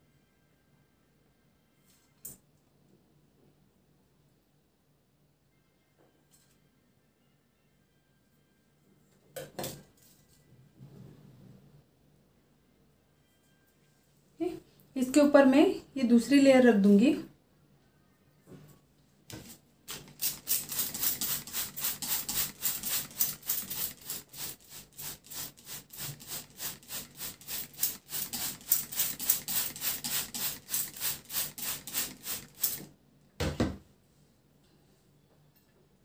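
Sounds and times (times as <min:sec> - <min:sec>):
spray bottle hissing sprays: 0:19.9 - 0:32.9.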